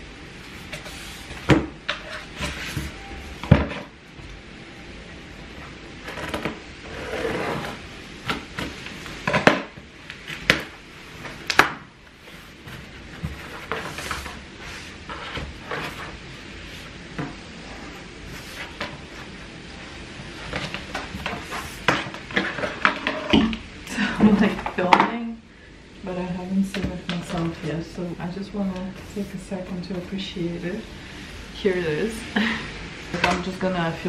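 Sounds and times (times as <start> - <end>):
cardboard flaps scraping: 12.2 - 17.0.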